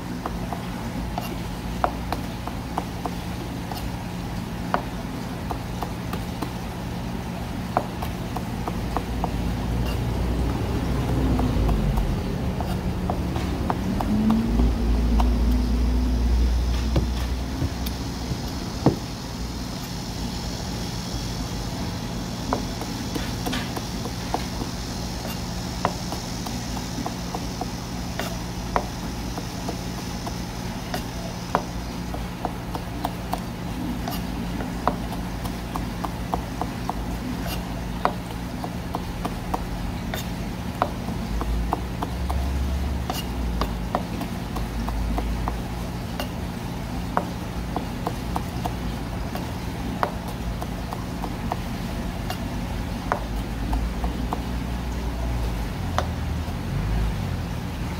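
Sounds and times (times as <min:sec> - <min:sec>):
low steady hum: 0:00.0 - 0:57.9
knife tapping cutting board: 0:07.7 - 0:15.6, 0:16.7 - 0:19.0, 0:22.5 - 0:45.6, 0:47.1 - 0:52.4, 0:53.0 - 0:54.6, 0:55.9 - 0:56.2.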